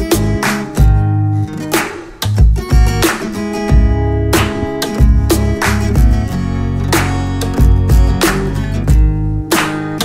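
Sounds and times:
strummed acoustic guitar chords: 0:00.0 - 0:10.0
bass line: 0:02.5 - 0:08.6.

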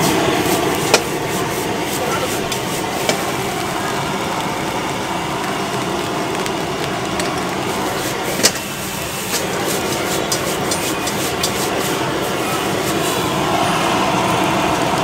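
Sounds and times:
gas burner flame roaring: 0:00.0 - 0:15.0
vegetables sizzling in wok: 0:00.0 - 0:15.0.

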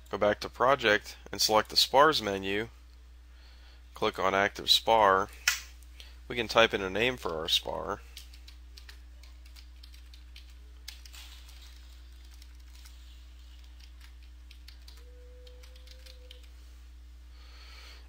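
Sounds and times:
low steady hum: 0:00.0 - 0:18.0
computer keyboard typing: 0:08.2 - 0:16.5.

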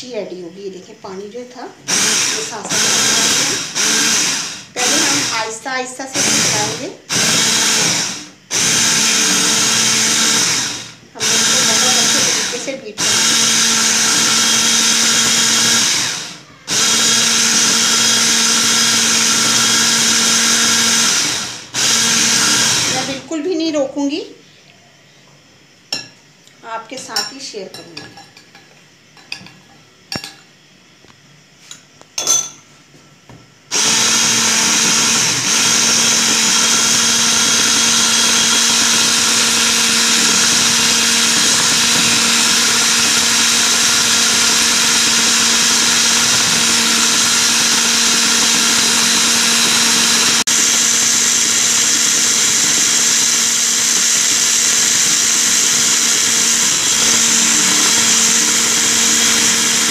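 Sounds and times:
electric hand mixer running: 0:01.8 - 0:23.3, 0:33.7 - 0:59.9
spoon clinking on glass bowl: 0:27.0 - 0:30.5, 0:32.2 - 0:32.6.

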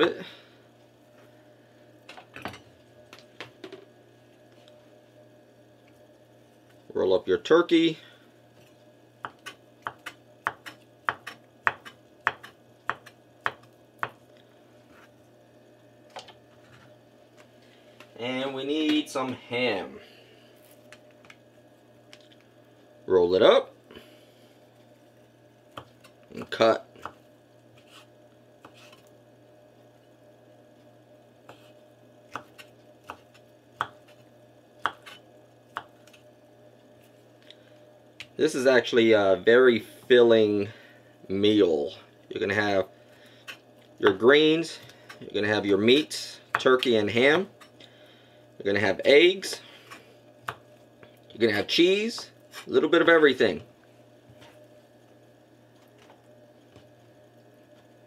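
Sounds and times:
knife chopping on wooden board: 0:09.2 - 0:14.2, 0:34.8 - 0:35.9.

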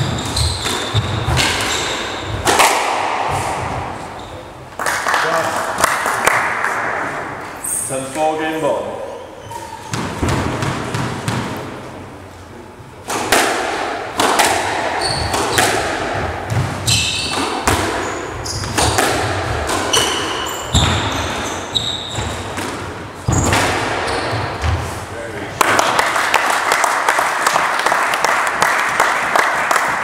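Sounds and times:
shoes squeaking on wooden floor: 0:00.0 - 0:02.4, 0:09.2 - 0:10.3, 0:15.0 - 0:15.7, 0:16.5 - 0:22.6, 0:23.2 - 0:25.0
squash ball cracking off rackets: 0:00.0 - 0:04.0, 0:13.0 - 0:21.3, 0:25.6 - 0:29.9.

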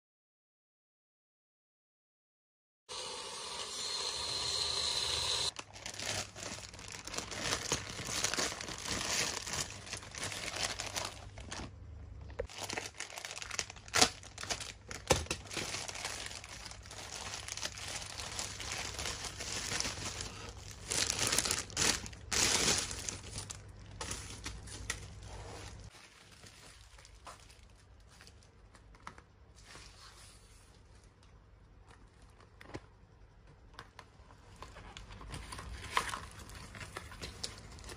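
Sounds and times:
plastic ripping: 0:05.5 - 0:11.7, 0:12.4 - 0:28.4
plastic and bubble wrap crinkling: 0:05.5 - 0:33.0, 0:34.3 - 0:37.9.

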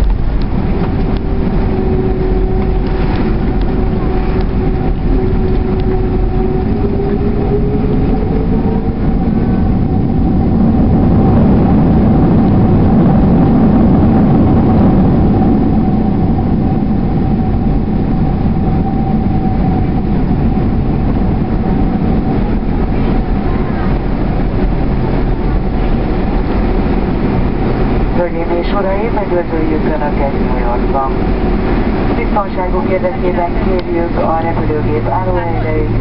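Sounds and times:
constant whine: 0:00.0 - 0:36.0
jet engines and wheels rumbling: 0:00.0 - 0:36.0.

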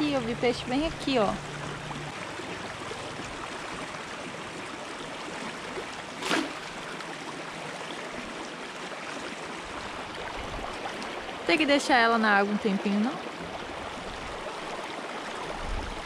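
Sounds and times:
rocky stream running: 0:00.0 - 0:16.0
cast net splashing into water: 0:06.1 - 0:07.0.

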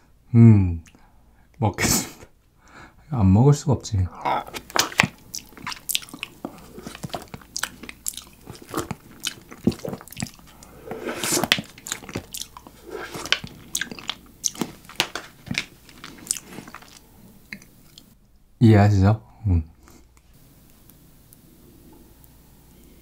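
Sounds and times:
wet tongue and lip smacks: 0:04.5 - 0:10.7, 0:11.5 - 0:18.2.

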